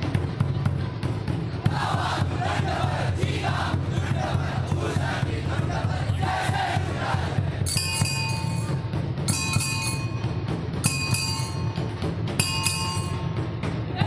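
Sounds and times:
dhol drums beating: 0.0 - 14.0.

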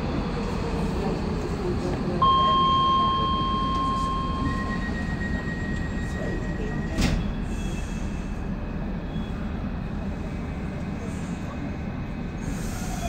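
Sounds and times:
train braking rumble: 2.2 - 11.5, 12.1 - 13.0.

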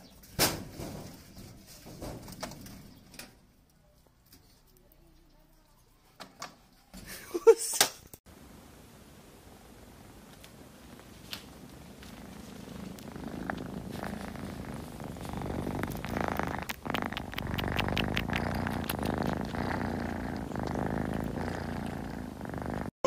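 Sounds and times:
cat purring: 9.0 - 23.0.

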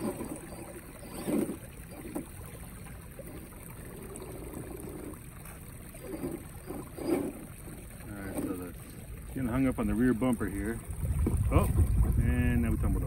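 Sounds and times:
rc car motor whirring: 0.0 - 2.4, 6.0 - 7.8
water trickling: 0.0 - 13.0.

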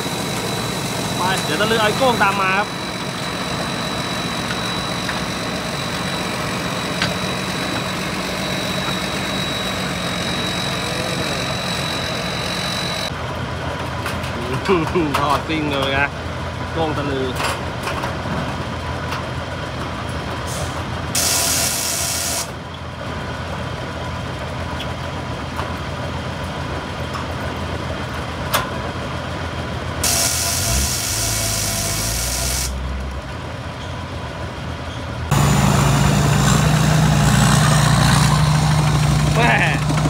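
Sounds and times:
vehicle engine running: 0.0 - 17.0, 32.7 - 40.0.

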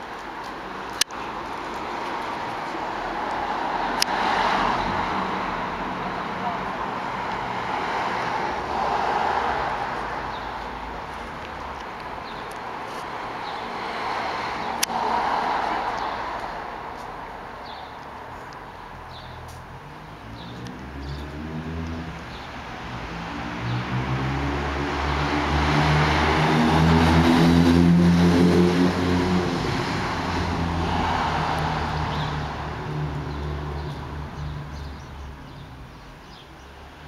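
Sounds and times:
car driving past: 20.2 - 22.3, 22.9 - 34.8.

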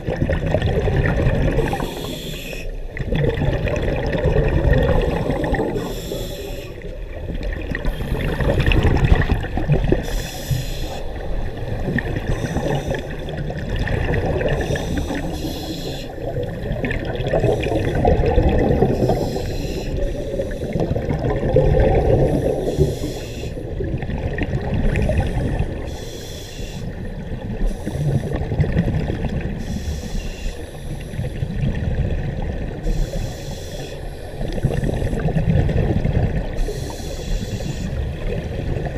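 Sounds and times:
gurgling exhaled bubbles: 0.0 - 26.0, 26.9 - 30.0, 31.0 - 33.2, 34.4 - 38.9
low rush of water: 2.7 - 15.4.

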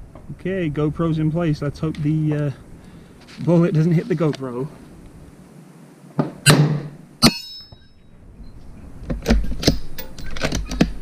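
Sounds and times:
bullet clanging on steel plate: 6.4 - 8.0.

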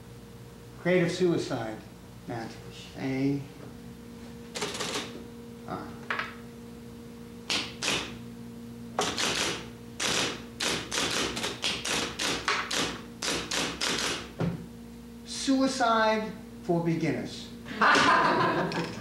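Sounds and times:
faint steady hum: 0.0 - 19.0
typewriter keystrokes: 4.6 - 5.1, 7.5 - 8.1, 9.0 - 14.2.

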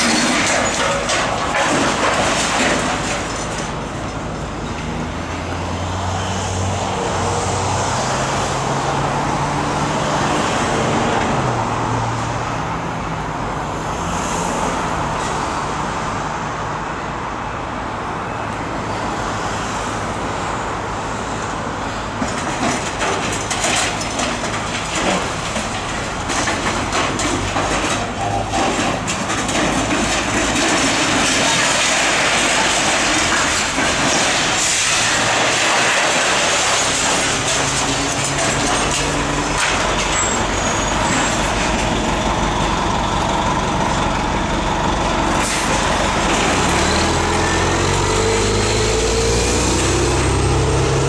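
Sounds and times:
metal cracking and crushing: 0.0 - 4.3, 22.2 - 42.1
excavator engine and hydraulics: 21.2 - 51.0.

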